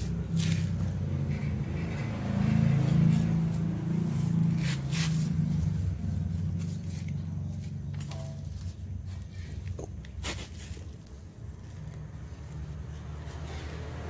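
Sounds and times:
low mechanical drone: 0.0 - 14.0.

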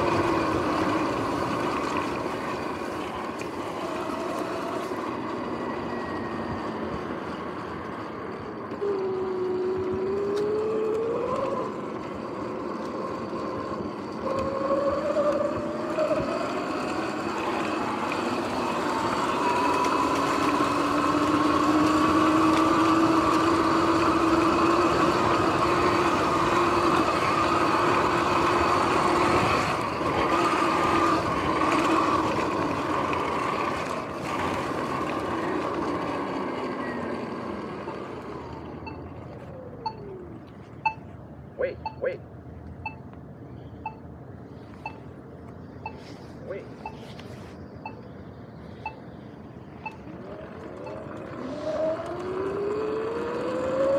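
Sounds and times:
electric motor whine: 0.0 - 40.4, 49.8 - 53.9.

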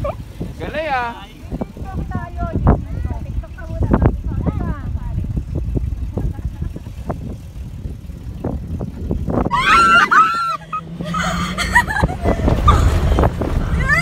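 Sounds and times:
vehicle driving over sand: 0.4 - 14.0
passengers screaming: 9.5 - 12.0.

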